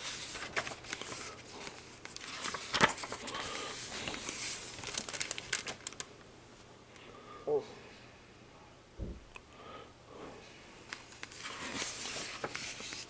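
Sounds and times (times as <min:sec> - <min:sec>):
paper pages rustling: 0:00.0 - 0:06.1, 0:10.9 - 0:13.0
small paper crackles: 0:00.0 - 0:06.1, 0:10.9 - 0:13.0.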